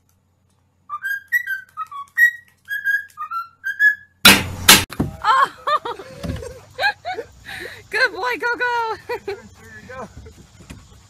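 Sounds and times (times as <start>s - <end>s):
cockatiel whistling: 0.9s - 4.2s.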